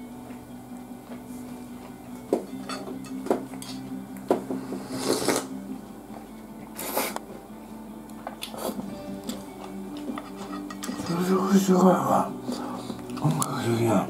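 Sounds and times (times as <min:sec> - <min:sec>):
slurping soup: 0:04.6 - 0:05.6, 0:06.7 - 0:07.3, 0:08.4 - 0:09.7.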